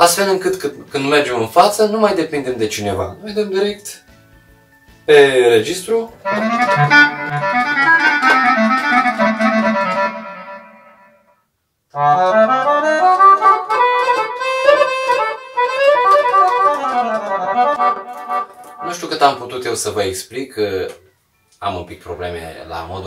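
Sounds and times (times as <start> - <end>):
accordion melody: 5.1 - 11.3, 11.9 - 19.4.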